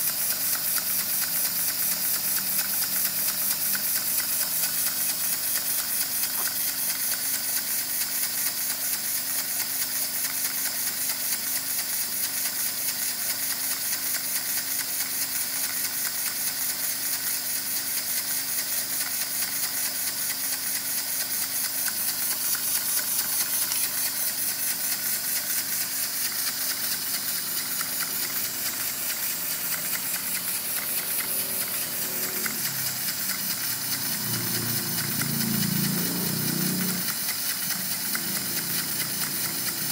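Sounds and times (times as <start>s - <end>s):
air-powered piston engine puffing: 0.0s - 39.9s.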